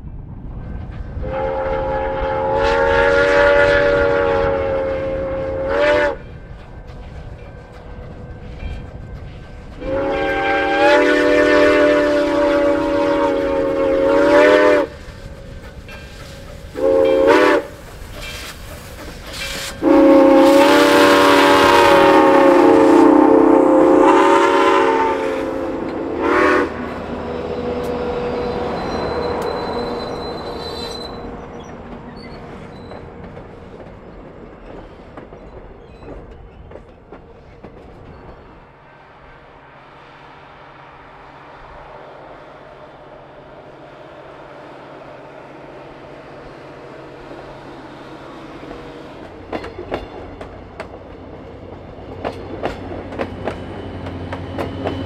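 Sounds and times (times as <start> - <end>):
steam locomotive whistle: 1.2 - 6.4, 9.8 - 18.6, 19.2 - 31.5
train wheels clicking over rail joints: 5.3 - 21.7, 26.8 - 38.8, 47.2 - 55.0.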